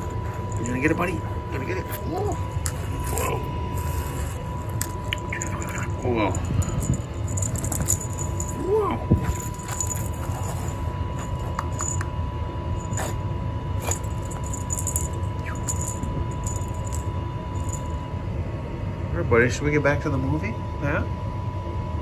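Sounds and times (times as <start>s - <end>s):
toy rattling and scraping on concrete: 0.0s - 12.0s, 12.8s - 13.2s, 13.8s - 17.9s
steady low hum: 0.0s - 22.0s.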